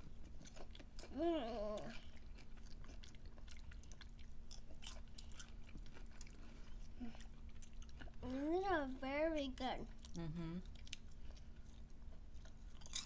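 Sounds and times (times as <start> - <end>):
chewing popcorn: 0.0 - 13.0
person humming: 10.2 - 10.6.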